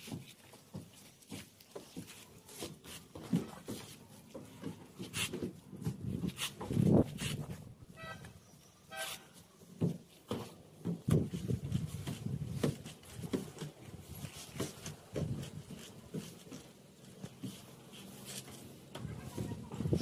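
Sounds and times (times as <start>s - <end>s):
vehicle horn toots: 7.9s - 9.4s.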